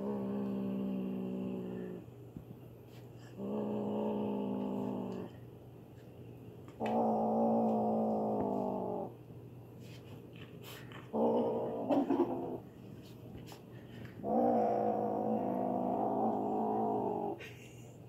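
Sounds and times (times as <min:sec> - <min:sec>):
kitten growling: 0:00.0 - 0:02.0, 0:03.4 - 0:05.4, 0:06.8 - 0:09.1, 0:11.0 - 0:12.7, 0:14.2 - 0:17.4.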